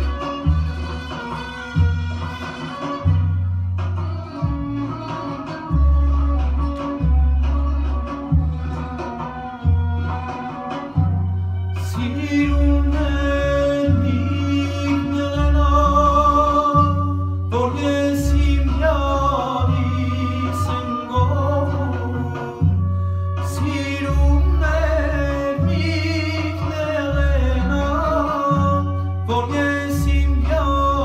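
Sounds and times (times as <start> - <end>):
bass held notes: 0.0 - 31.0
recorded backing music: 0.0 - 31.0
man singing into a microphone: 11.8 - 31.0.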